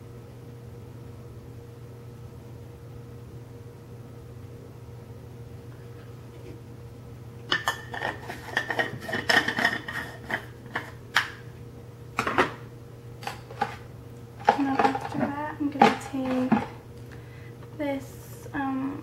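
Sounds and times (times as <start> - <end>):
makeup containers clicking and clattering: 14.4 - 16.8.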